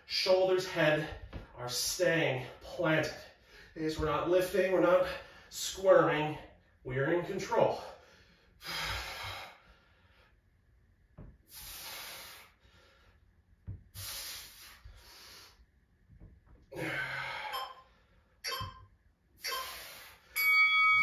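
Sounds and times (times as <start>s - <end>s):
man breathing heavily: 2.3s - 3.8s, 4.8s - 5.6s, 7.7s - 10.6s, 11.4s - 15.8s, 16.6s - 18.4s, 19.4s - 20.4s.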